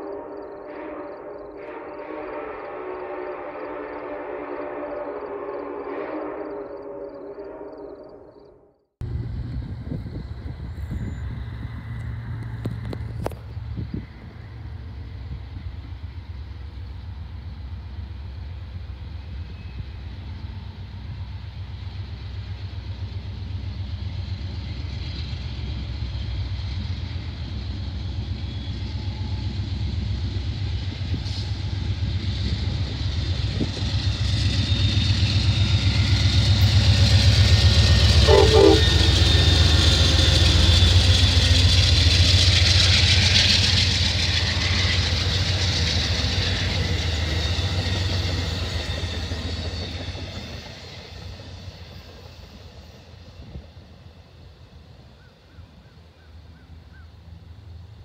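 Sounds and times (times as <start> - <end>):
train horn: 0.0 - 8.7, 37.8 - 42.0
passing train rumble: 0.0 - 58.0.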